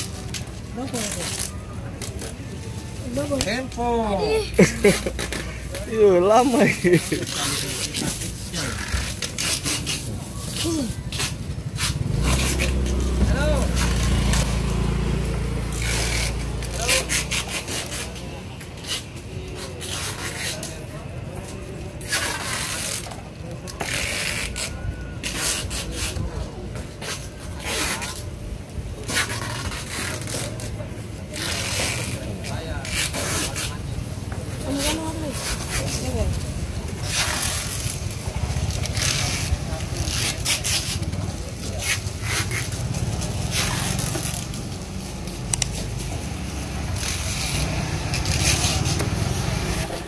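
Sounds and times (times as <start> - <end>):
rustling and scraping: 0.0 - 50.0.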